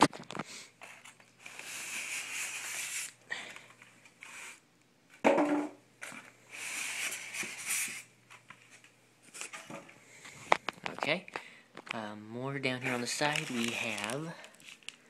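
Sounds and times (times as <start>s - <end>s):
styrofoam scraping against cardboard: 0.8s - 3.2s, 4.2s - 4.6s, 6.5s - 8.1s, 12.8s - 14.8s.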